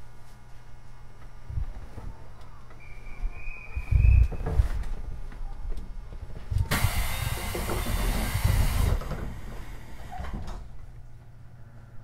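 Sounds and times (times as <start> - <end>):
compressed air hissing: 6.7 - 10.3.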